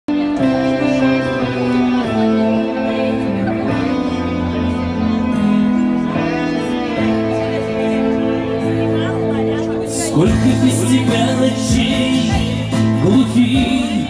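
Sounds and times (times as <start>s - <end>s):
guitar over held chords: 0.1s - 14.0s.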